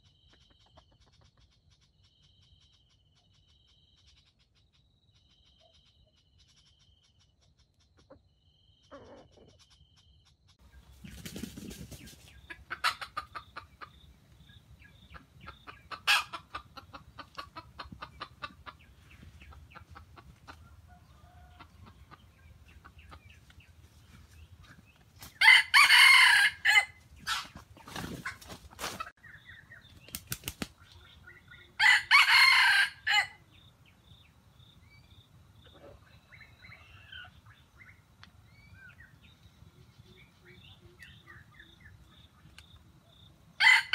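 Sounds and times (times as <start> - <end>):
chicken clucking: 0.0 - 1.6, 8.0 - 9.8, 10.8 - 25.5, 26.6 - 31.8, 35.6 - 37.6
rooster crowing: 25.4 - 27.0, 31.8 - 33.4, 43.6 - 43.9.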